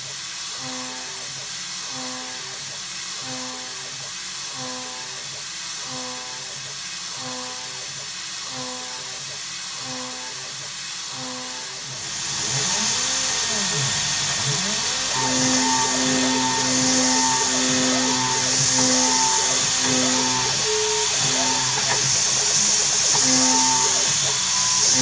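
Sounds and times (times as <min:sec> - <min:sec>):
mill spindle cutting metal: 0:11.1 - 0:25.0
air nozzle hissing: 0:12.6 - 0:25.0.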